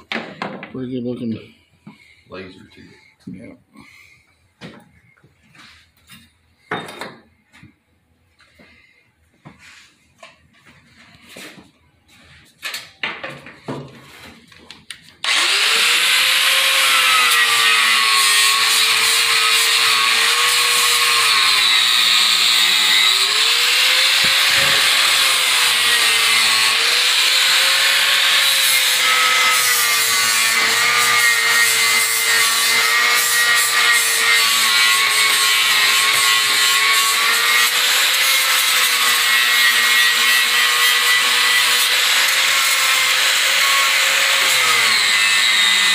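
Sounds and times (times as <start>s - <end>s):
angle grinder grinding metal: 15.2s - 45.9s.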